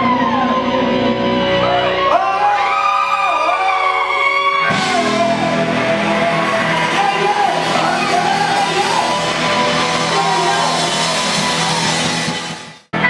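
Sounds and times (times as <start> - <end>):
electric guitar bending notes: 3.6 - 13.0
live punk rock band: 4.4 - 13.0.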